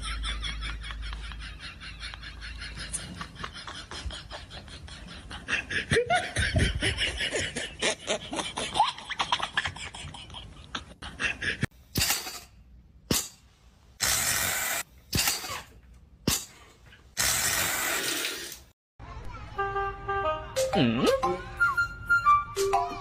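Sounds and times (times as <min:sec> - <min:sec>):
person laughing: 0:00.0 - 0:11.7.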